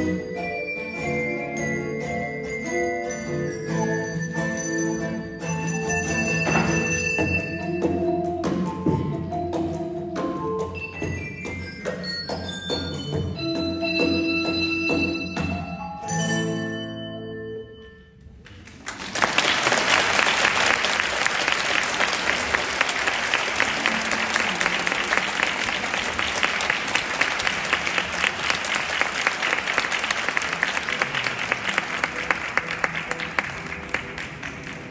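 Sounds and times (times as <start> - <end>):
handbell ensemble and guitar chord: 0.0 - 18.1
audience applause: 18.5 - 34.9.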